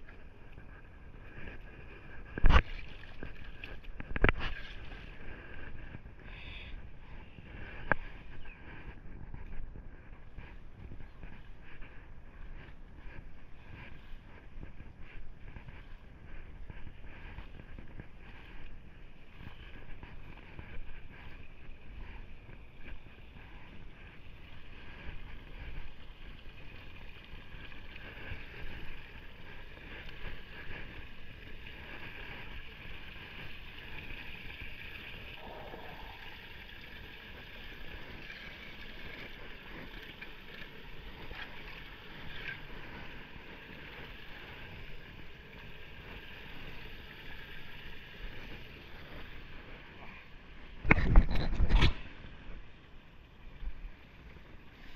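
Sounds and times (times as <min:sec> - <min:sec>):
wind rumble on microphone: 0:00.0 - 0:54.9
water sloshing and draining: 0:31.6 - 0:49.4.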